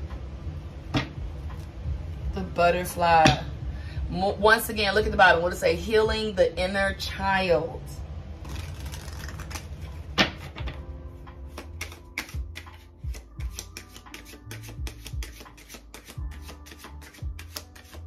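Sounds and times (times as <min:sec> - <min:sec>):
soft background music: 0:00.0 - 0:18.0
cards being shuffled: 0:08.4 - 0:10.8, 0:11.5 - 0:18.0.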